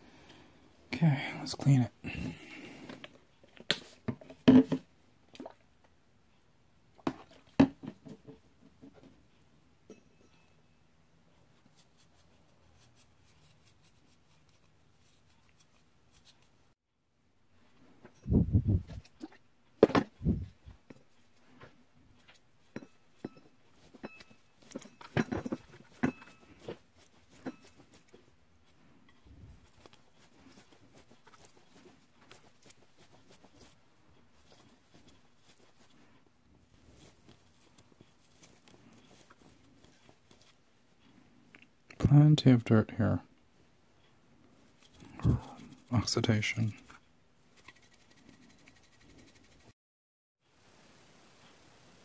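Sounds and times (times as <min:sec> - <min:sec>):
soft rustle: 0:11.2 - 0:16.8, 0:17.4 - 0:42.2, 0:43.4 - 0:49.8, 0:50.5 - 0:52.0.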